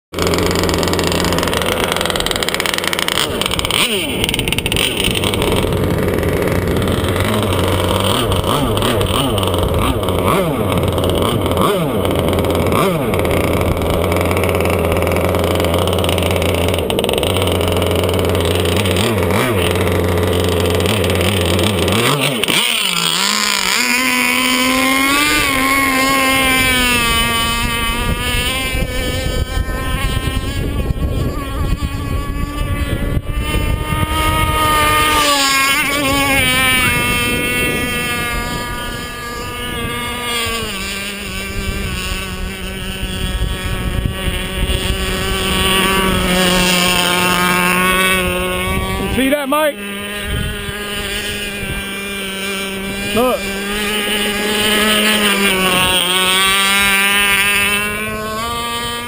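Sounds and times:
small gasoline engine: 0.1s - 59.0s.

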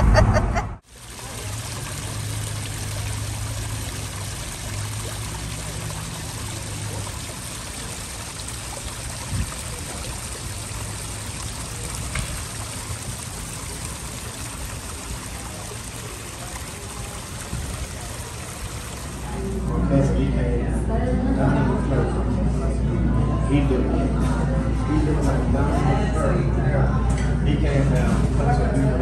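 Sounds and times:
water trickling over stones: 0.8s - 19.9s.

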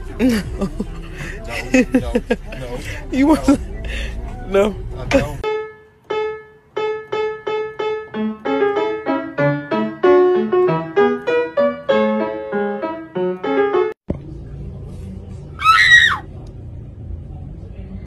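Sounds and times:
piano music: 5.1s - 14.0s.

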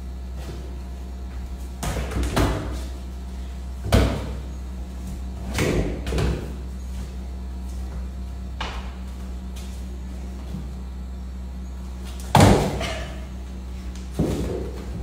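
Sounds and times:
steady low hum: 0.0s - 15.0s
football thudding against wall and floor: 0.4s - 2.9s, 3.8s - 6.6s, 8.6s - 9.2s, 12.1s - 13.2s, 14.1s - 15.0s.

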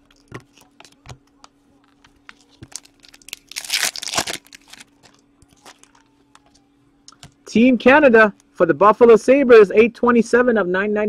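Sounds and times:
foil wrapper crinkling: 0.0s - 6.6s
faint steady hum: 0.0s - 11.0s.

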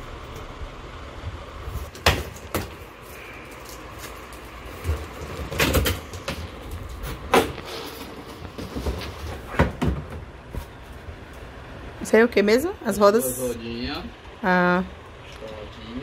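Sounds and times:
sharp knocks and crackles: 1.7s - 11.5s.

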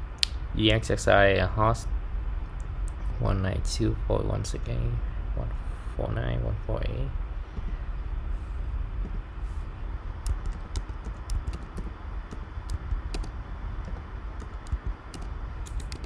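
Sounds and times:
steady low hum: 0.0s - 16.0s
keyboard typing clicks: 10.2s - 16.0s.

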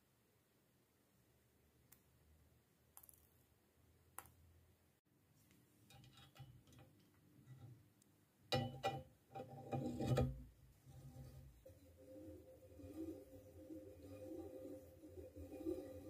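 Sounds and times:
metallic clattering and scraping: 8.6s - 16.0s.

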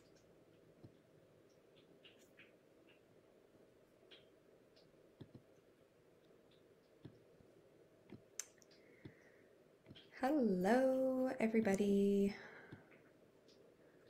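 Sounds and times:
faint clicks: 0.0s - 3.1s, 4.0s - 10.2s.

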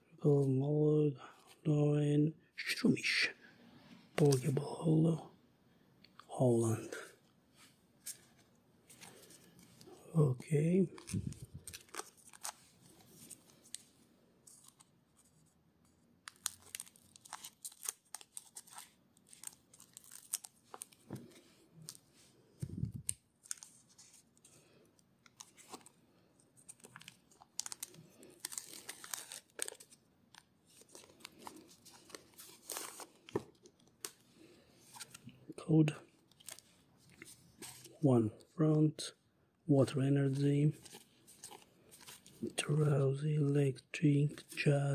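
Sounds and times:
foil pack crinkling and tearing: 11.0s - 13.8s, 16.3s - 21.1s, 26.7s - 34.2s.

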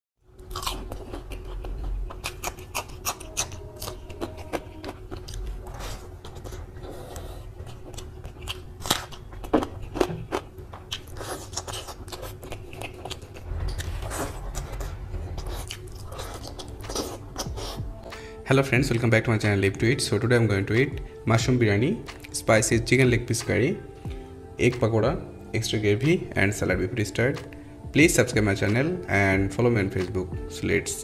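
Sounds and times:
wet chewing and lip smacks: 0.6s - 6.6s.

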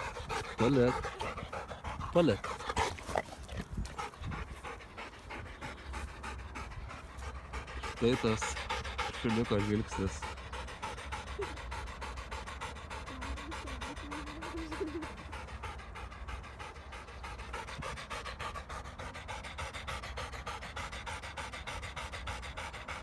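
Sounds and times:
dog panting rapidly: 0.0s - 23.0s.

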